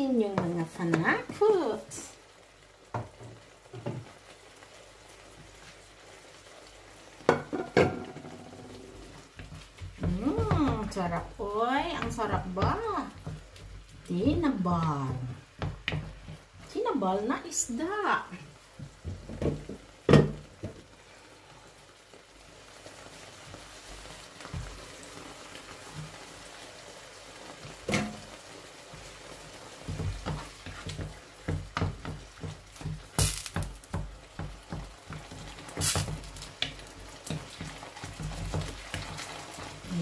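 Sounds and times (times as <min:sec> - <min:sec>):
sauce simmering in a frying pan: 0:00.0 - 0:40.0
wooden spatula scraping a pan: 0:07.9 - 0:19.8, 0:23.1 - 0:40.0.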